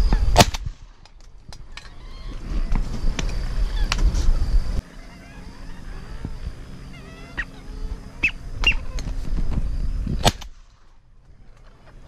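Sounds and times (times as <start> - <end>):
wind rumble on microphone: 0.0 - 12.0
ducks whistling calls: 1.7 - 9.8.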